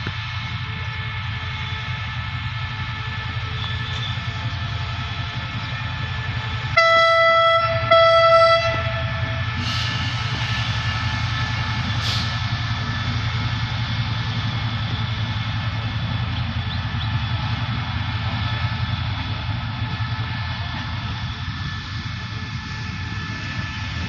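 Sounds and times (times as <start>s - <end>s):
diesel engine running: 0.0s - 24.0s
locomotive horn blast: 6.6s - 10.2s.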